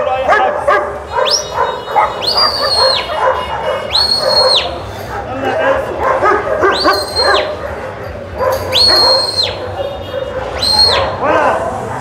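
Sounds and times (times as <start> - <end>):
dogs barking and yelping: 0.0 - 11.2
sharp high whistles: 1.2 - 3.1, 3.9 - 4.8, 6.7 - 7.6, 8.7 - 9.6, 10.5 - 11.2.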